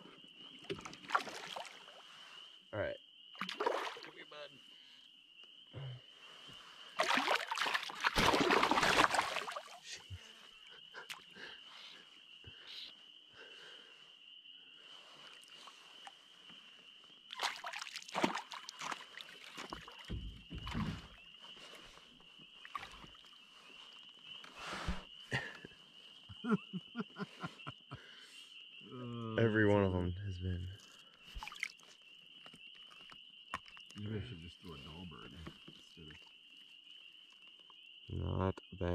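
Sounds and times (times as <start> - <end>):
fish splashing at surface: 3.4 - 4.1, 7.0 - 9.8, 17.3 - 20.1, 31.4 - 31.8
knocks against canoe: 19.6 - 21.1.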